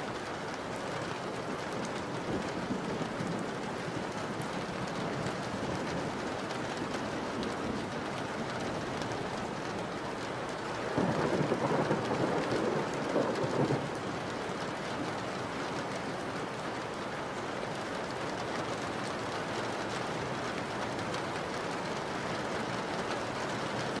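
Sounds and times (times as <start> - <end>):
heavy rain falling: 0.0 - 24.0
thunder rolling: 10.9 - 14.0.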